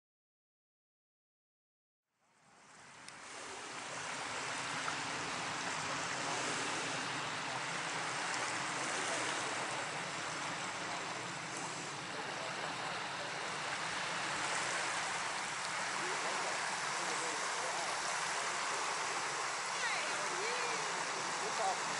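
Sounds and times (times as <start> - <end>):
small waves lapping on sand: 2.2 - 21.9.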